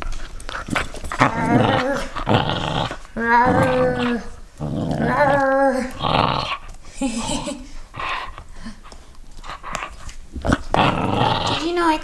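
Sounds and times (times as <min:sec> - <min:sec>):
dog play growling: 0:00.0 - 0:12.0.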